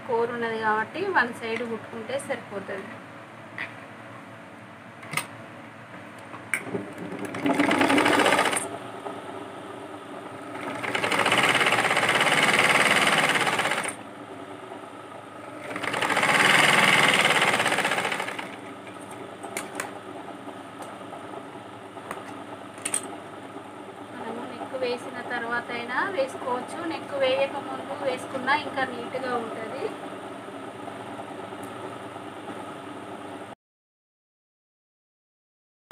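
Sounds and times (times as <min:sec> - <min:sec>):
sewing machine stitching: 0:06.9 - 0:08.7, 0:10.5 - 0:14.0, 0:15.5 - 0:18.7.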